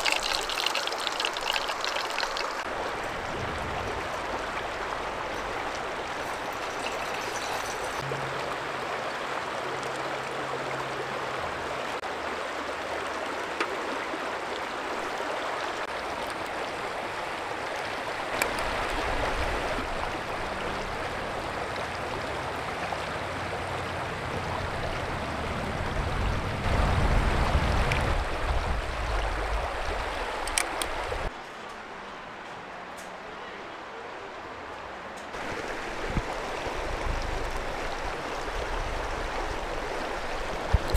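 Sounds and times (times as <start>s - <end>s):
stream flowing over stones: 0.0s - 31.3s, 35.2s - 40.9s
low rumbling water swells: 2.6s - 12.0s, 18.7s - 30.3s.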